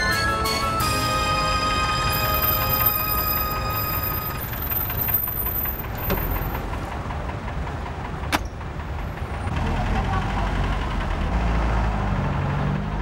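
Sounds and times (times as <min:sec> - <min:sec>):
background music: 0:00.0 - 0:04.6
street traffic: 0:00.0 - 0:13.0
taxi engine idling: 0:00.0 - 0:13.0.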